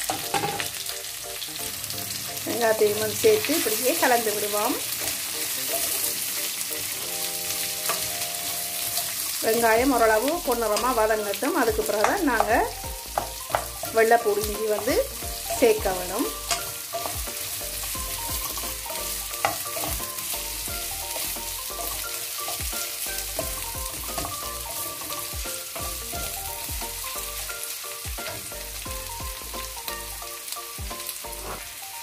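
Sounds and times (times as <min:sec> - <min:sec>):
spatula scraping and knocking pan: 0:00.0 - 0:00.9, 0:09.8 - 0:27.2, 0:28.0 - 0:28.7, 0:30.8 - 0:31.8
onions sizzling in hot oil: 0:00.0 - 0:32.0.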